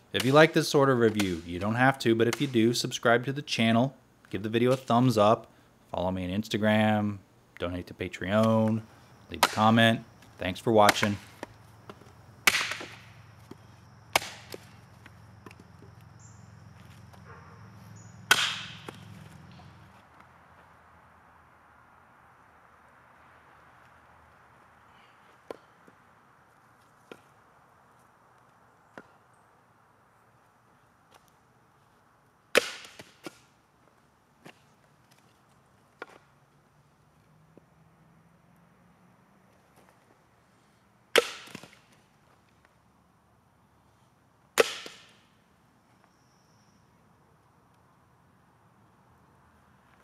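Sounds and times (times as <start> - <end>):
machete chopping branch: 0.2 - 0.4, 2.3 - 2.6, 9.4 - 9.8, 10.8 - 13.1, 14.1 - 14.7, 18.3 - 19.1, 32.5 - 33.5, 41.1 - 42.0, 44.6 - 45.2.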